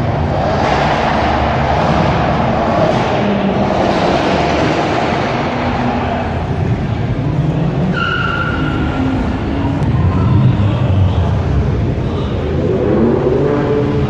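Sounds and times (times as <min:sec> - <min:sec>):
car engines revving: 0:00.0 - 0:14.0.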